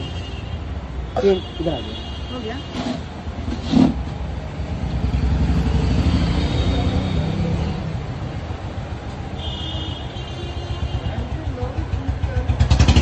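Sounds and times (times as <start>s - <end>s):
vehicle engine rumbling: 2.5s - 9.4s, 10.8s - 13.0s.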